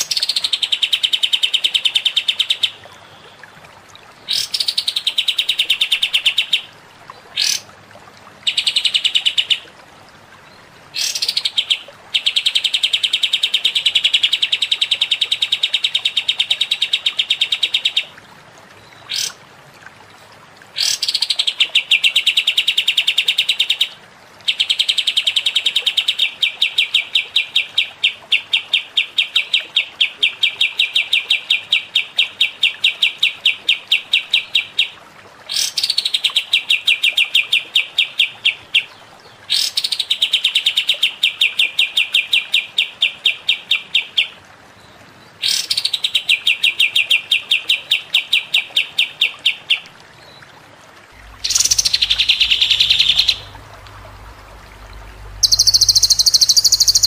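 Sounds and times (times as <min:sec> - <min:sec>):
songbird trills: 0:51.2 - 0:57.0.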